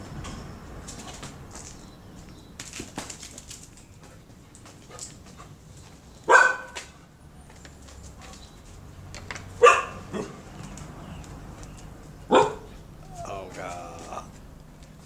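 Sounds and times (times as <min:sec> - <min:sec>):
small dog barking: 0:06.3 - 0:06.8, 0:09.6 - 0:10.4, 0:12.3 - 0:13.3.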